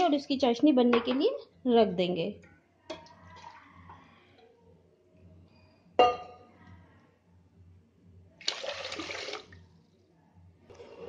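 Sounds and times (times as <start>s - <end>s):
glass bowl clink: 6.0s - 6.4s
water pouring into pot: 8.4s - 9.6s.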